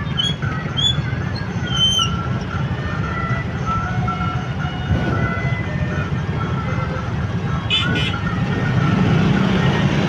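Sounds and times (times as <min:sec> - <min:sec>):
motorbike engines idling: 0:00.0 - 0:10.0.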